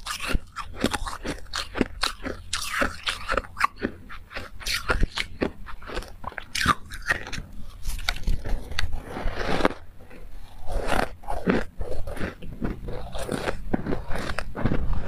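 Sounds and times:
ice crunching in mouth: 0.0 - 15.0.

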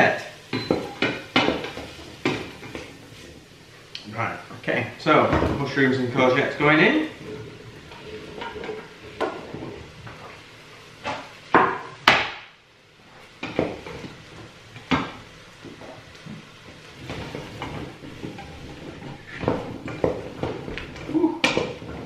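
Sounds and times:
wood knocking on steel pot: 11.5 - 12.4.

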